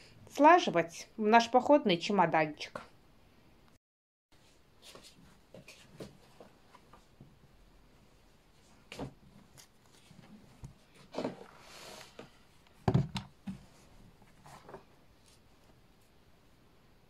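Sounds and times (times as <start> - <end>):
fabric rustling: 8.1 - 12.6
thump: 12.8 - 13.6.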